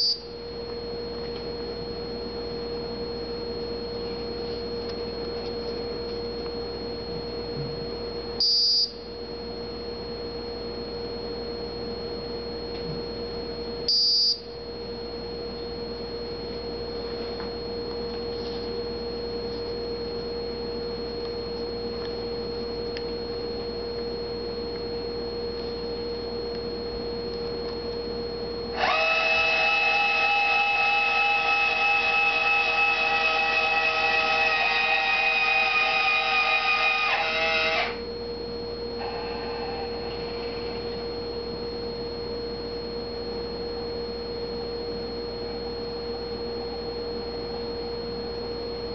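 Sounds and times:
motor whine: 27.6 - 43.1
steady electronic tone: 28.8 - 41.3.

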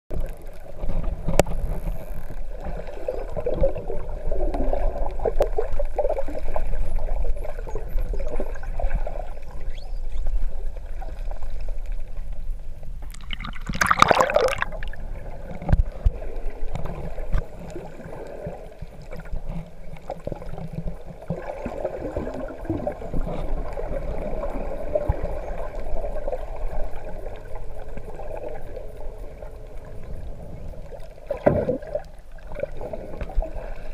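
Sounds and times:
underwater gurgling and bubbling: 0.1 - 33.9
bubbling and splashing at surface: 13.1 - 15.9.

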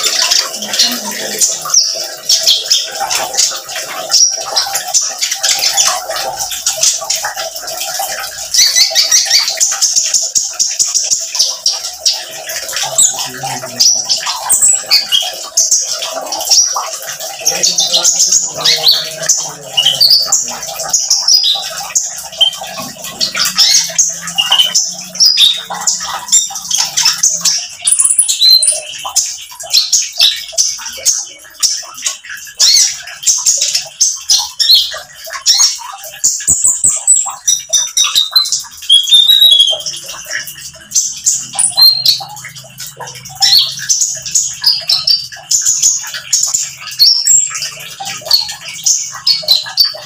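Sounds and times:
running water trickle: 0.0 - 50.0
bird singing high chirps: 17.4 - 29.1, 34.3 - 40.2, 41.4 - 42.4.

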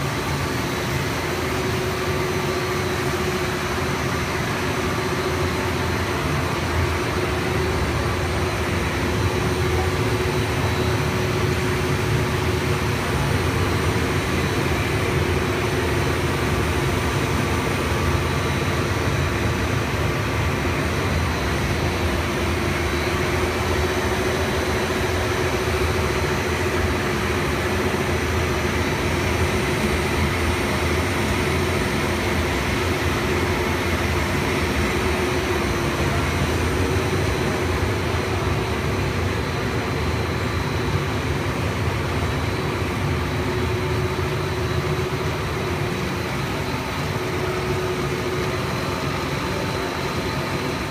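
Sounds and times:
machine hum: 0.0 - 50.9.

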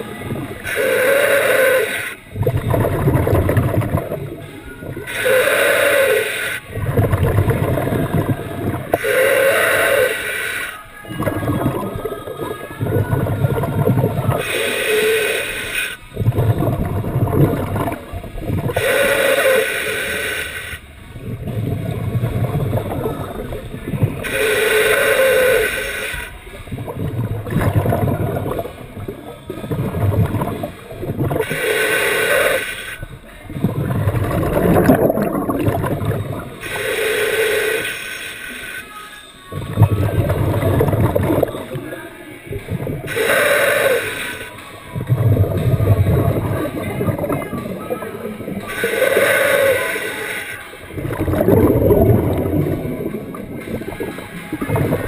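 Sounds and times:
gurgling exhaled bubbles: 0.0 - 37.8, 39.5 - 55.0
hissing regulator inhales: 0.6 - 2.3, 4.9 - 10.9, 13.2 - 17.5, 18.7 - 23.6, 24.2 - 26.5, 31.4 - 33.1, 36.6 - 39.0, 43.1 - 44.6, 48.2 - 50.8.

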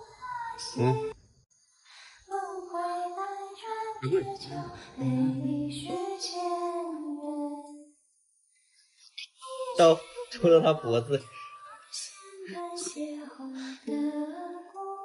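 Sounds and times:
woman singing long held notes: 2.3 - 7.8, 9.3 - 15.0.

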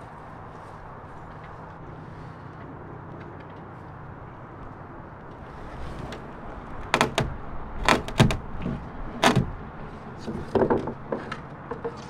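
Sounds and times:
knocks and creaks on wooden beam: 5.3 - 12.0.

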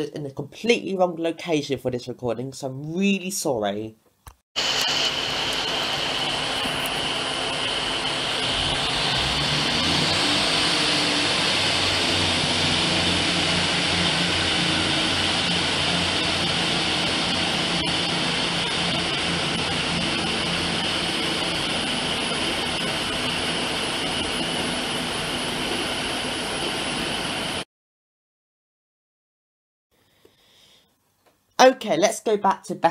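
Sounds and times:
diesel train engine drone: 4.6 - 27.6.

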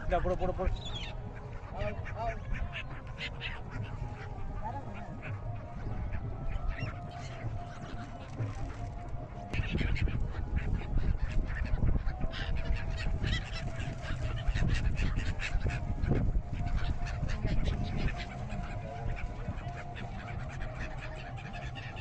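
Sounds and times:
flock of gulls calling: 0.0 - 22.0.

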